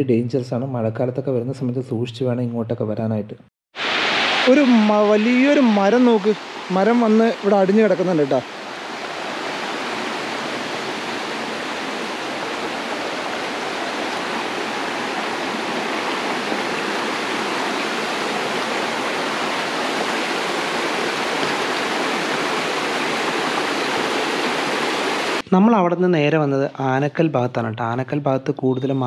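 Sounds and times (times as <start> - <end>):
stream running over stones: 3.8 - 25.4.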